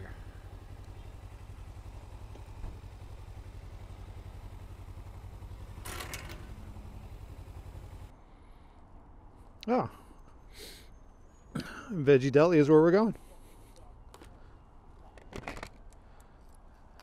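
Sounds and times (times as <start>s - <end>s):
motorcycle engine idling: 0.0s - 8.6s
short clatter: 5.8s - 6.7s.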